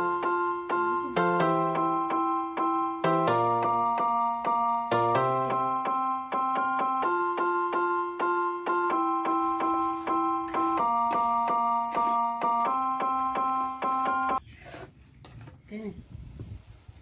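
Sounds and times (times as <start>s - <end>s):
keyboard playing evenly spaced notes: 0.0s - 14.4s.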